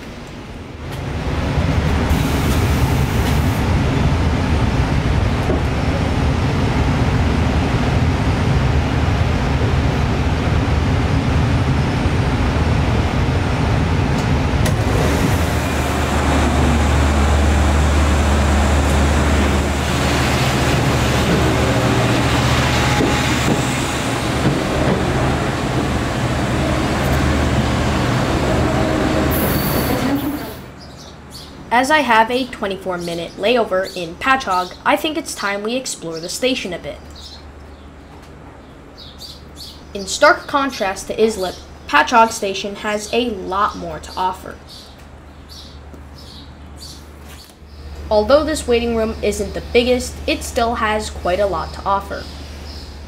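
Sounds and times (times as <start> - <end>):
train running rumble: 0.0 - 30.8
diesel locomotive engine drone: 0.0 - 34.0, 45.1 - 53.0.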